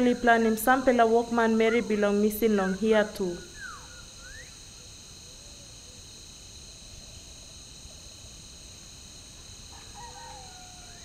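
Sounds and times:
crickets chirping: 0.0 - 11.0
faint rising whistle: 3.4 - 4.8.

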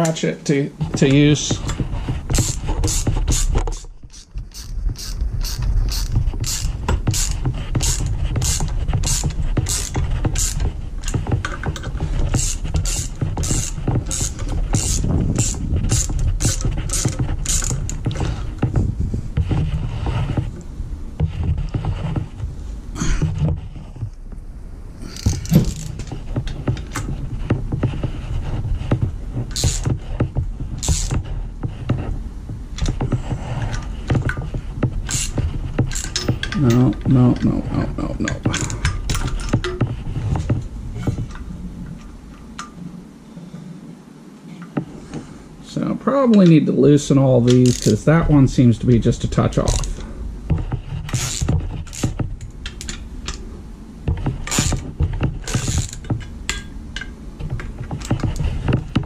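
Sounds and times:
ratchet clicking: 2.3 - 18.2, 29.5 - 29.9, 30.8 - 31.2, 35.1 - 36.8, 47.6 - 48.0, 54.4 - 54.8.

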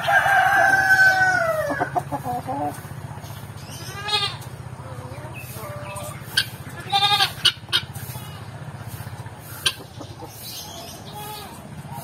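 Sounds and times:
chicken clucks: 0.0 - 3.5, 4.4 - 6.8, 7.4 - 11.0
chicken bleat-like call: 3.8 - 4.5, 6.8 - 8.5.

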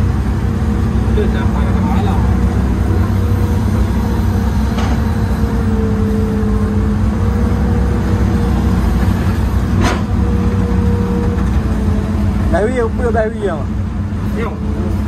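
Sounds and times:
excavator engine humming with whine: 0.0 - 15.0.

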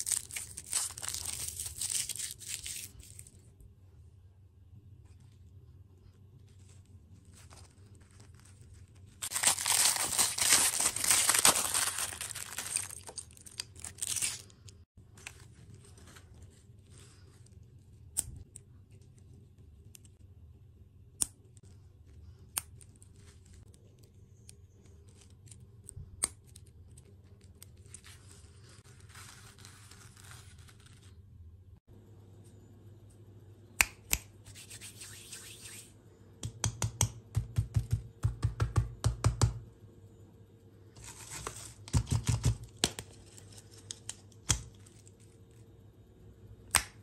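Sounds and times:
plastic wrapper crinkling and tearing: 0.0 - 3.4, 7.3 - 16.6
plastic rustle: 6.5 - 14.4.

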